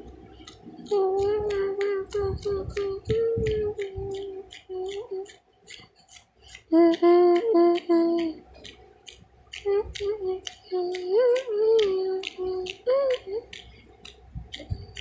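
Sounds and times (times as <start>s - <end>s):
young female voice singing: 0.9s - 5.4s, 6.7s - 8.4s, 9.6s - 13.6s.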